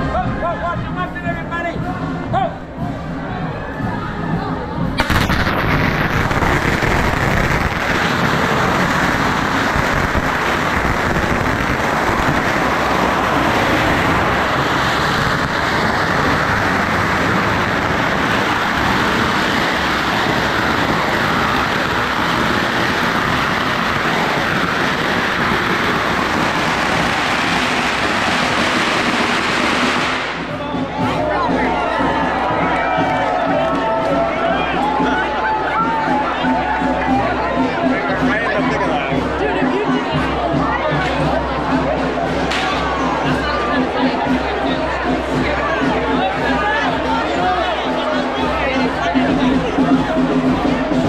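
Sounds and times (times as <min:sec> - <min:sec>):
firecrackers crackling: 0:04.9 - 0:31.2, 0:42.3 - 0:51.0.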